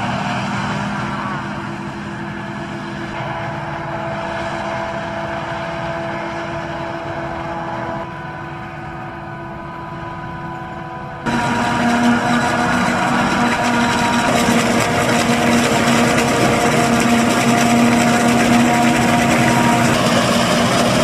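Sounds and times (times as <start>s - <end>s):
tractor engine: 0.0s - 21.0s
forage harvester chopping: 11.3s - 21.0s.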